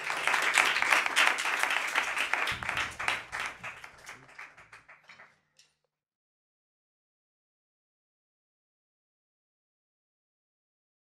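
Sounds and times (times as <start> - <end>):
group applauding: 0.0 - 5.4.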